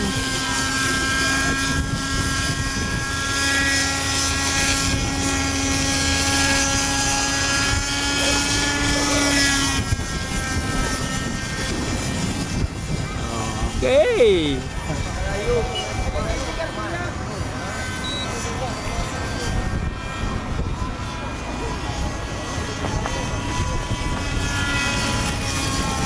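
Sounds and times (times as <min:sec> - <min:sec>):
model helicopter engine and rotor: 0:00.0 - 0:26.0.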